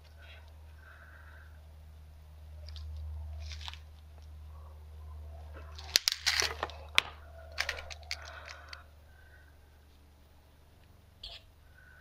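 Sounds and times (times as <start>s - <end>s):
steady low hum: 0.0s - 12.0s
small metal clicks and rattles: 5.7s - 8.8s.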